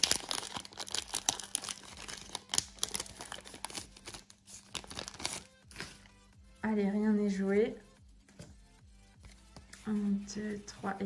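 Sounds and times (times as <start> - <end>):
foil wrapper crinkling and tearing: 0.0 - 5.9.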